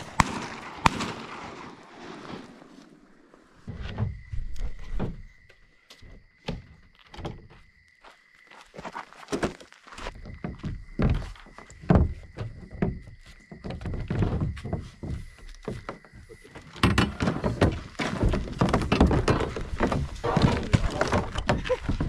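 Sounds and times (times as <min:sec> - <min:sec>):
footsteps: 0:02.1 - 0:22.0
hollow thunks of gear: 0:09.3 - 0:22.0.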